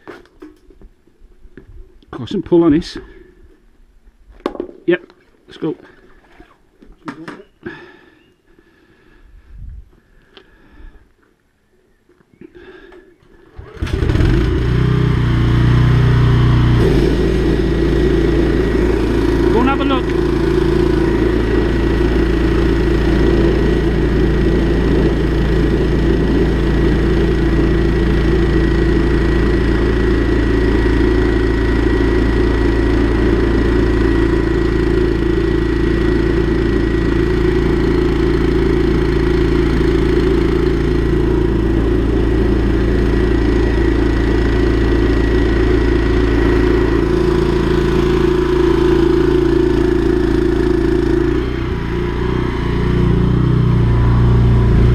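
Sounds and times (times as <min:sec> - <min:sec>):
engine-driven pump droning: 0:13.3 - 0:54.9.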